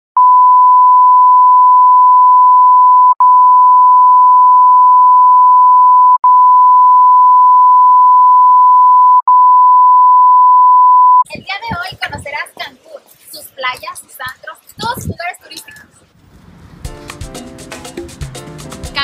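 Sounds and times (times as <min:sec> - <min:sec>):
steady test tone beep: 0:00.2 - 0:11.3.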